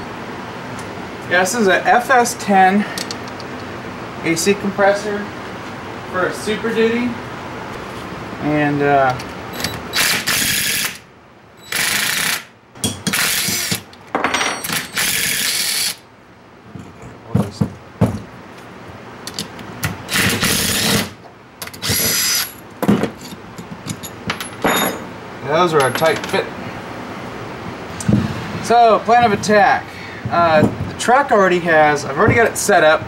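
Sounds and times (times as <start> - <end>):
impact driver bursts: 9.6 - 11.0, 11.6 - 12.5, 13.1 - 13.9, 20.1 - 21.2, 21.8 - 22.5
metal bolts clinking: 21.6 - 26.4.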